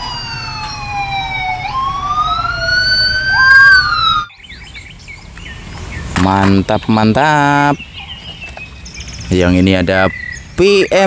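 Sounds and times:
police siren wailing: 0:00.0 - 0:04.4
second siren tone: 0:00.0 - 0:04.4.

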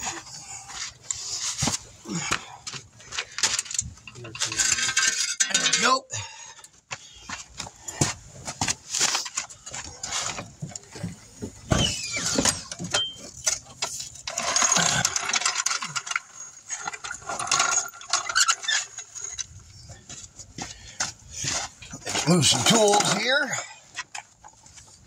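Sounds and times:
metal tools clinking and clattering: 0:00.0 - 0:06.3, 0:08.8 - 0:25.0.

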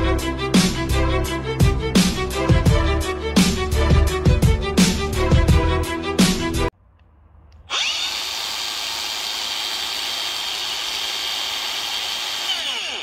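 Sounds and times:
angle grinder whine: 0:07.6 - 0:13.0.

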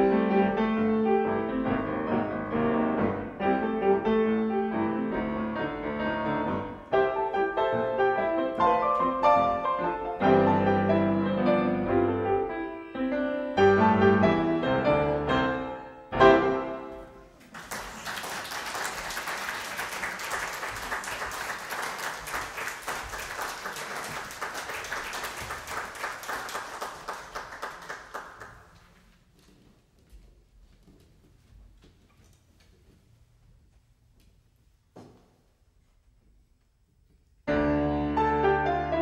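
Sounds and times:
audience applauding: 0:17.4 - 0:28.9.

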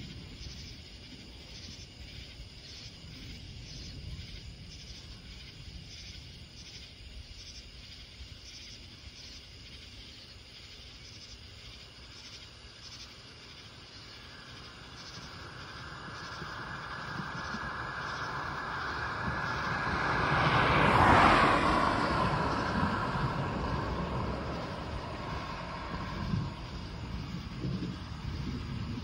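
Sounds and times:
night insects chorus: 0:00.0 - 0:29.0
approaching train hiss: 0:14.0 - 0:29.0
distant thunder rumble: 0:14.2 - 0:29.0.

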